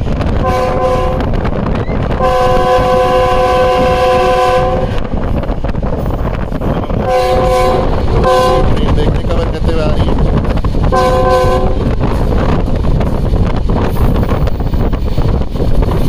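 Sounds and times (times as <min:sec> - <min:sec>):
engine and wheels rumble: 0:00.0 - 0:16.0
locomotive air horn blasts: 0:00.4 - 0:01.4, 0:02.2 - 0:05.1, 0:07.0 - 0:08.8, 0:10.9 - 0:11.8.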